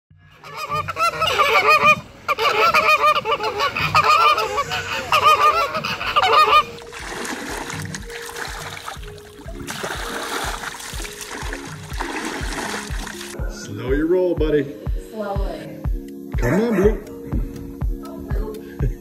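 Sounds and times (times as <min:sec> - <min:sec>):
flamingos honking: 0:00.3 - 0:09.6
splashing water: 0:03.5 - 0:13.4.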